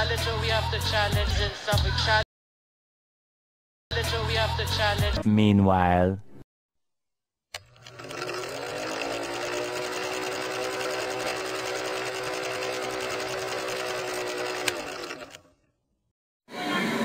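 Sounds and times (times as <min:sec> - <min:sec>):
film projector clattering: 0:07.6 - 0:15.4.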